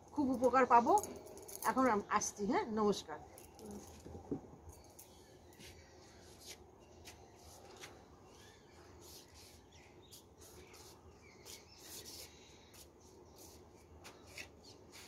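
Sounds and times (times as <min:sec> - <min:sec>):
faint bird chirps: 0:04.7 - 0:13.6.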